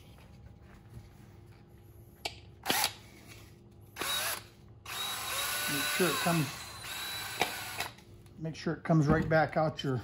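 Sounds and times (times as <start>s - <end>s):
power drill whining: 4.0s - 8.0s.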